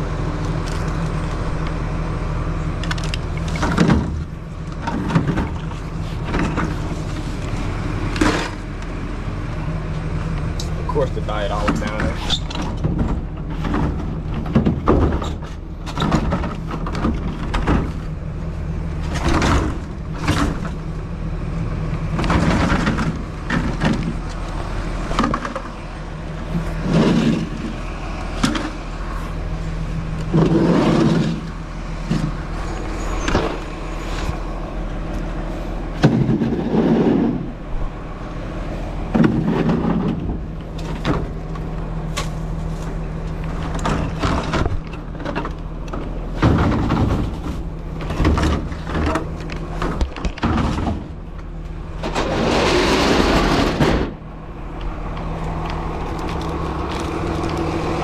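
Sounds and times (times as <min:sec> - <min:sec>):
vehicle engine idling: 0:00.0 - 0:58.0
hard objects clattering and scraping: 0:22.1 - 0:34.6, 0:35.4 - 0:37.6, 0:39.0 - 0:54.2.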